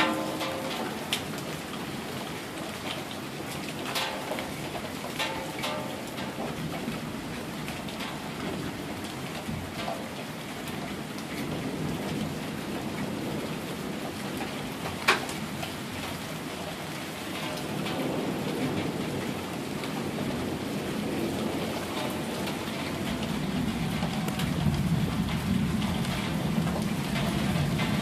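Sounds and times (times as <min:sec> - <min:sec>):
rain splashing on pavement: 0:00.0 - 0:28.0
low thunder rumble: 0:17.6 - 0:28.0.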